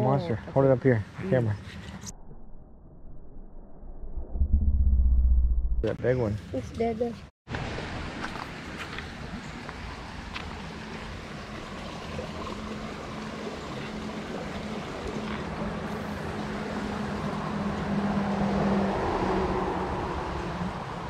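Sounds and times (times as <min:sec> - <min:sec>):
creek water flowing: 0:07.5 - 0:21.0
steady engine hum: 0:08.5 - 0:21.0.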